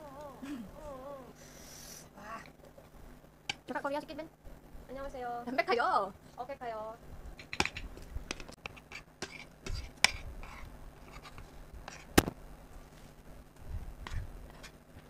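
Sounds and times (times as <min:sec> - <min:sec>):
chopsticks and spoons on plates: 0:07.4 - 0:12.1.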